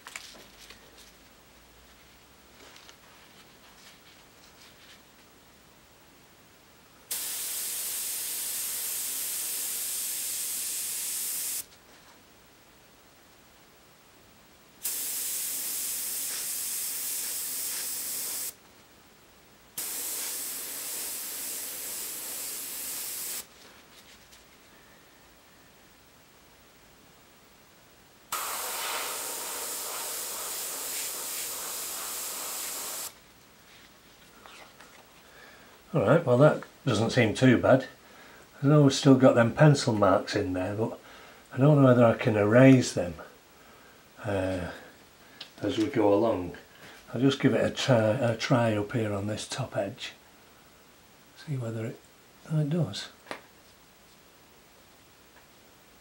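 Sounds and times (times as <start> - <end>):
airbrush air hiss: 7.1 - 11.7, 14.8 - 18.6, 19.8 - 23.5, 28.3 - 33.2.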